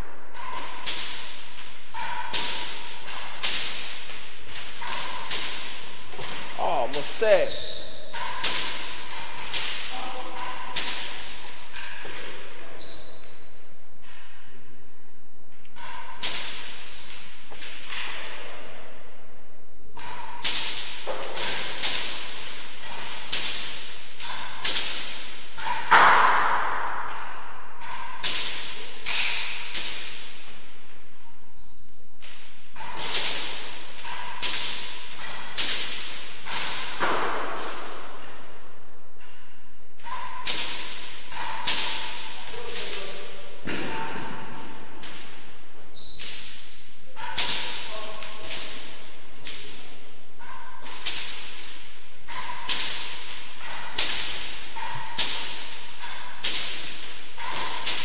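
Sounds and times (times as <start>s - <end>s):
ball rebounding off walls: 0.0s - 13.2s
rackets striking ball: 0.0s - 14.6s, 15.6s - 19.1s, 19.7s - 58.0s.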